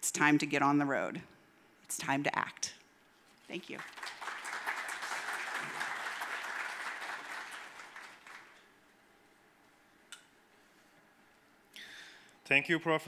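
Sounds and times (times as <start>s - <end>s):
audience applauding: 3.8s - 8.7s.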